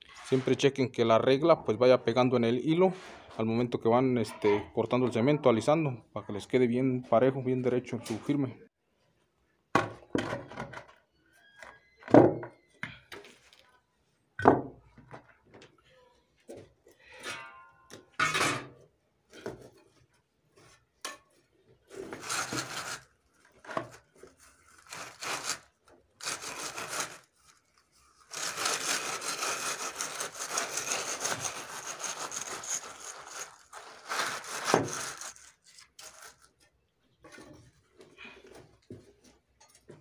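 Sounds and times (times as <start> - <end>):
wooden board scraping wet concrete: 28.3 - 32.9, 34.3 - 35.3.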